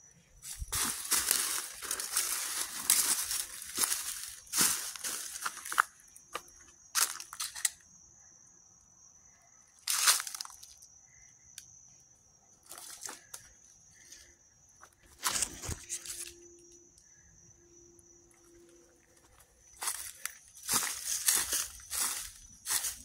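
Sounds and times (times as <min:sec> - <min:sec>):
footsteps crunching dry leaves: 0:00.4 - 0:07.4, 0:09.9 - 0:10.7, 0:19.2 - 0:23.0.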